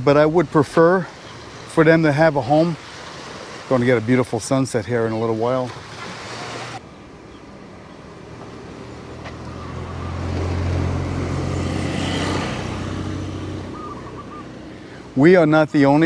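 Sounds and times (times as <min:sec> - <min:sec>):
motor scooter passing: 0:08.0 - 0:15.1.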